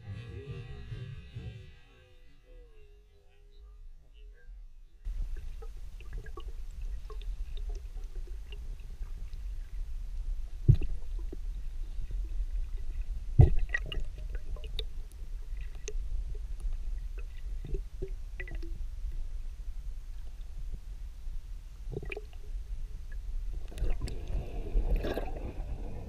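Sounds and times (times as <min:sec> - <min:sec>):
underwater low rumble: 0:00.0 - 0:26.0
small underwater clicks: 0:13.4 - 0:19.2, 0:23.6 - 0:24.4.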